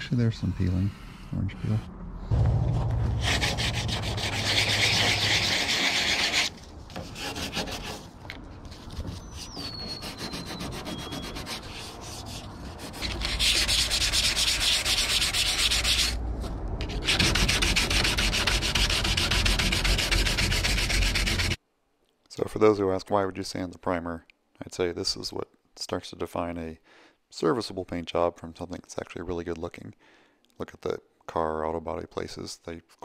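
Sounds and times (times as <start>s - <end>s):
hand sanding strokes: 3.2s - 16.2s, 16.9s - 21.6s.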